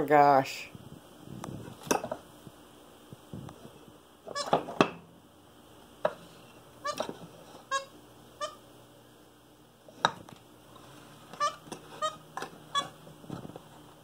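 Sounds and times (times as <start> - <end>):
high squeaks: 11.4 - 13.0.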